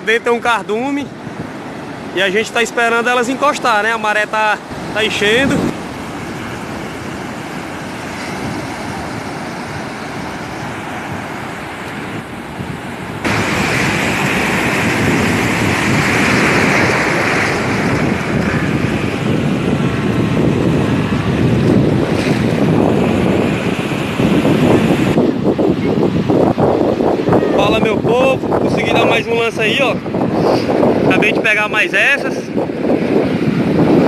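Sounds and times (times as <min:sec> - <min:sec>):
ocean waves breaking: 0:00.0 - 0:34.0.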